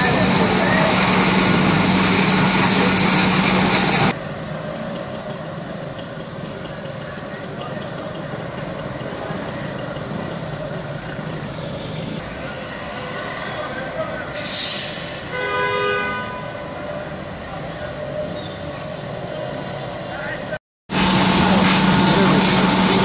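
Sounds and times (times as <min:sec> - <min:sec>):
hose water hissing: 0:00.0 - 0:04.2, 0:20.9 - 0:23.0
engine low hum: 0:00.0 - 0:12.2, 0:20.9 - 0:23.0
street noise: 0:00.0 - 0:23.0.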